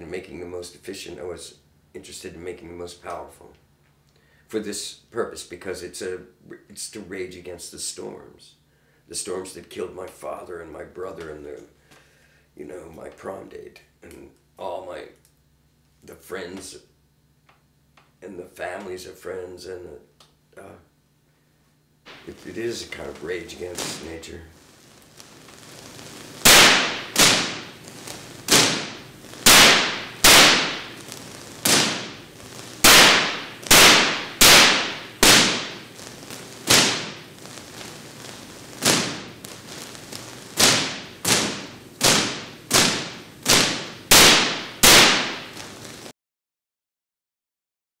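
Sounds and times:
high-voltage spark cracks: 0:22.1 - 0:46.1.

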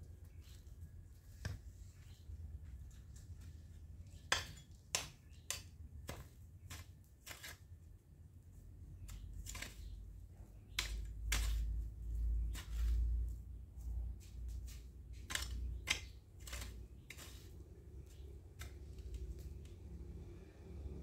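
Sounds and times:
garden shears snipping: 0:04.1 - 0:07.7, 0:09.0 - 0:13.3, 0:14.2 - 0:20.0.

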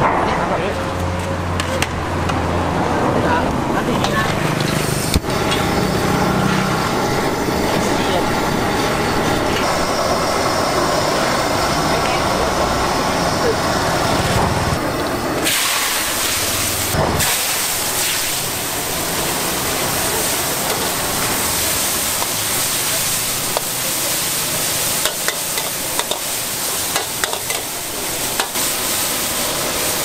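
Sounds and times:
hot oil sizzling in a wok: 0:04.4 - 0:30.0
metal spatula scraping wok: 0:19.2 - 0:29.1.

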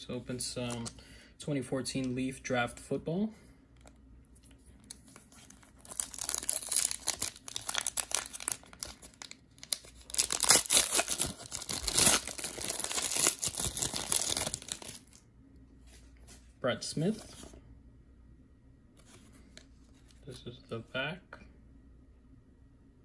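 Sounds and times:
foil wrapper tearing and crinkling: 0:05.4 - 0:15.2.

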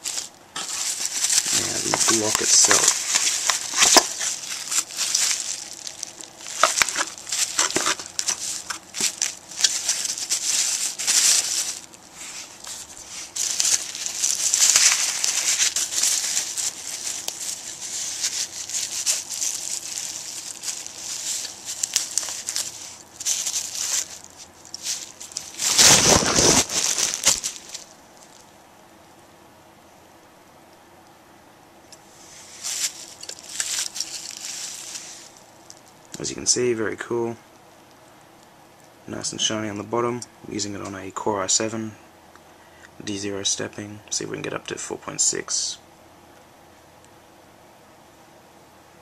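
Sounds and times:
plastic packaging crinkling: 0:00.0 - 0:28.6, 0:32.2 - 0:36.3.

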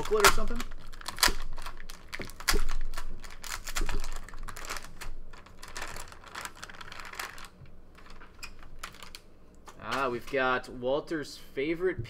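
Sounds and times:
foil wrapper crinkling: 0:00.0 - 0:10.5.

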